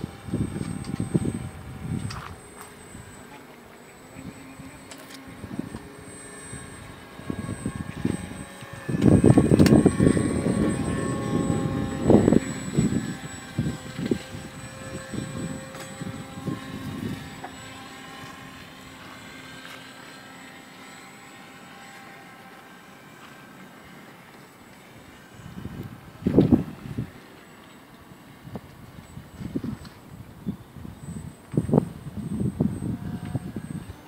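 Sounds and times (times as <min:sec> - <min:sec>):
low rumbling: 0:00.0 - 0:18.5
model plane motor whine: 0:00.0 - 0:34.0.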